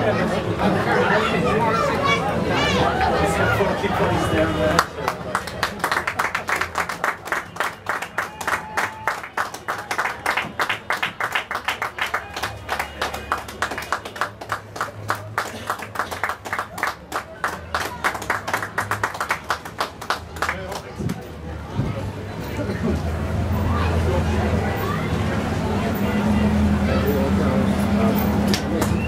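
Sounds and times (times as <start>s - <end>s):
people clapping: 4.6s - 21.3s, 28.2s - 29.0s.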